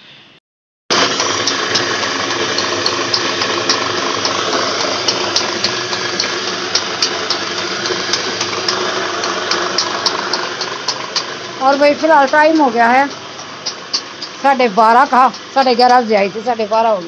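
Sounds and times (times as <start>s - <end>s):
electric motor running: 0.9s - 17.0s.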